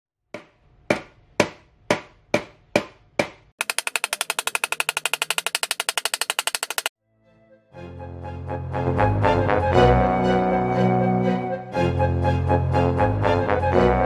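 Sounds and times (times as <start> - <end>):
hammer striking saw blade: 0.4 - 6.9.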